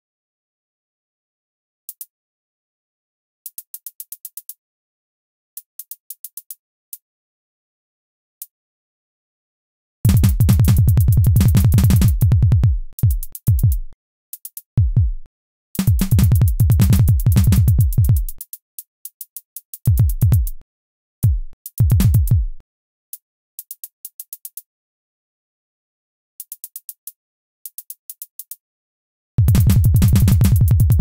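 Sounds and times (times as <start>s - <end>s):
electronic drum-machine music: 10.1s - 13.8s, 15.8s - 18.3s, 29.4s - 31.0s.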